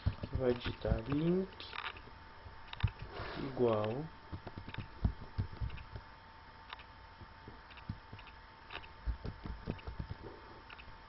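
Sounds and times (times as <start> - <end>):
microphone hiss: 0.0 - 11.0
keyboard typing: 4.4 - 6.0, 7.7 - 10.9.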